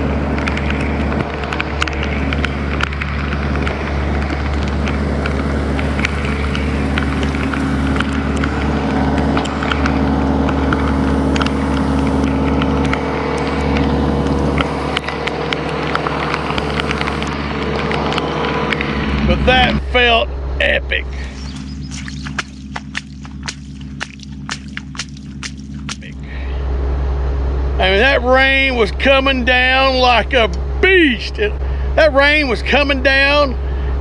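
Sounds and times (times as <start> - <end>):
engine running steadily: 0.0 - 34.0
raindrops tapping: 21.2 - 26.3.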